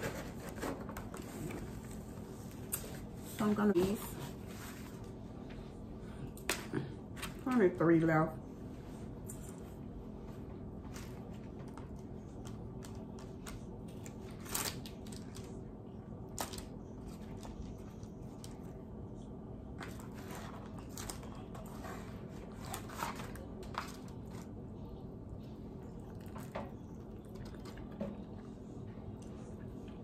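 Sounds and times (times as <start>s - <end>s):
steady low hum: 0.0s - 30.0s
paper crinkling and rustling: 10.9s - 15.7s, 19.8s - 24.5s.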